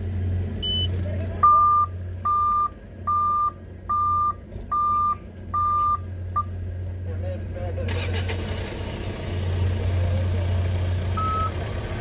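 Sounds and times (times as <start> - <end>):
diesel engine hum: 0.0 - 12.0
warning buzzer beeping: 0.6 - 0.9
short higher beep: 0.6 - 6.0, 11.2 - 11.5.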